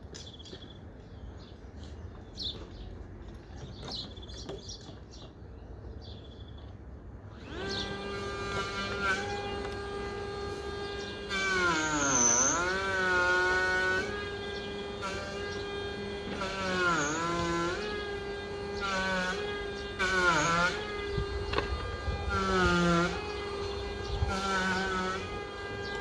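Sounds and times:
power saw cutting timber: 7.2 - 26.0.

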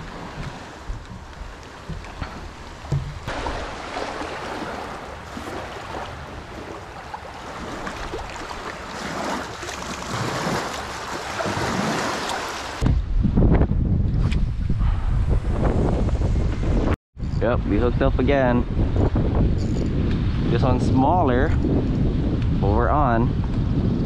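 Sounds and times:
small waves washing over rocks: 3.3 - 12.8.

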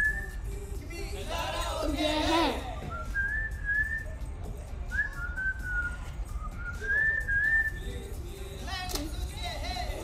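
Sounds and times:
woman whistling: 0.0 - 0.5, 2.8 - 4.2, 4.9 - 8.0.

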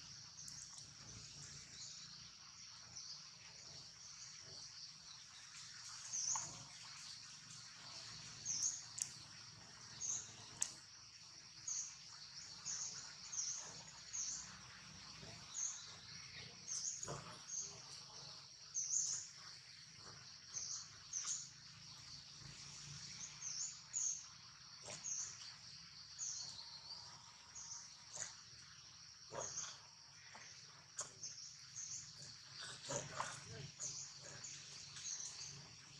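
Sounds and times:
faint clicks: 8.9 - 9.2, 10.6 - 10.8.

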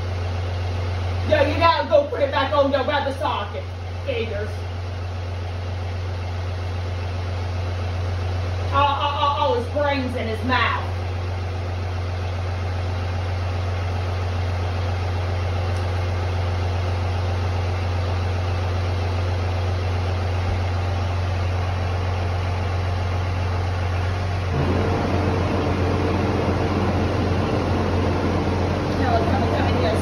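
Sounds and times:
engine idling: 0.0 - 30.0
steady higher note: 24.4 - 30.0.

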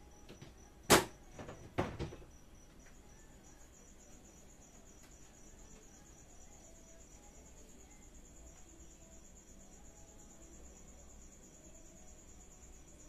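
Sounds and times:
cricket trilling: 0.0 - 13.0.

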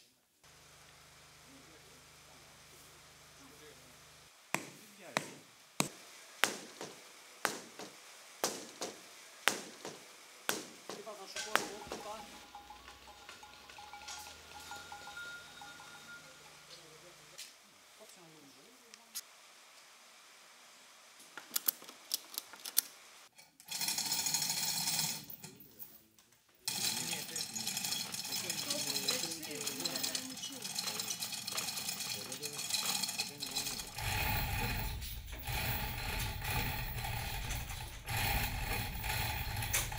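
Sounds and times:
hammer striking mortar: 4.6 - 16.6
ratchet rattling: 26.7 - 39.9.

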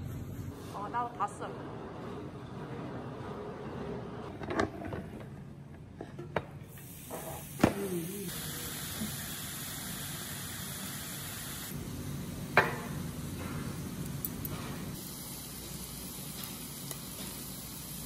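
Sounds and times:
meat sizzling on a griddle: 6.8 - 11.7, 15.0 - 18.0.

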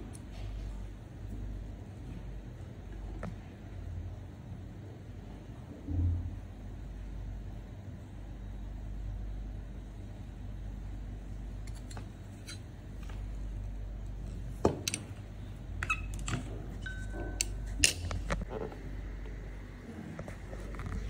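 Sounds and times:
steady low hum: 0.0 - 21.0
tools clicking and tapping: 14.6 - 15.2, 15.8 - 18.5.

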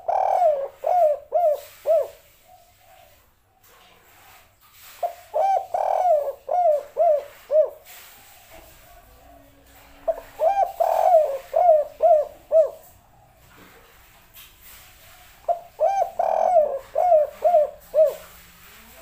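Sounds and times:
dove cooing: 0.0 - 3.2, 5.0 - 8.9, 10.0 - 14.0, 14.9 - 19.0.

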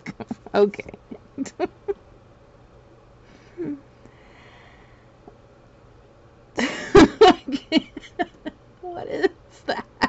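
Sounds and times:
woman humming: 3.5 - 3.9, 7.1 - 10.0
breathy laughter: 6.6 - 8.5.

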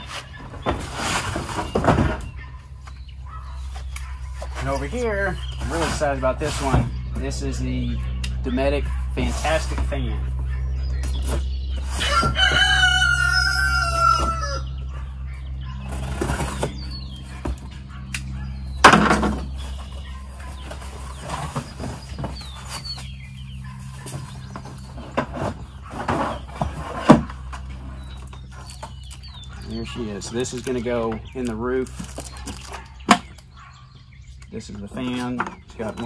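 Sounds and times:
steady low hum: 1.2 - 36.0
rooster crowing: 11.9 - 14.9.

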